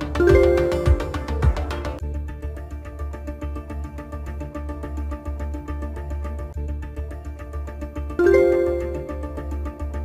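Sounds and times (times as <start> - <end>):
background music with steady beat: 0.0 - 10.0
bright electronic chime: 8.2 - 9.4.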